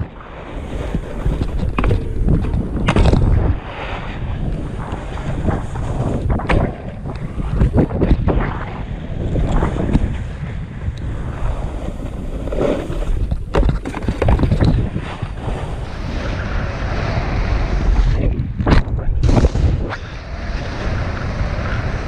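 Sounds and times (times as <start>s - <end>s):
snowboard scraping over snow: 0.0s - 22.0s
wind buffeting microphone: 0.0s - 22.0s.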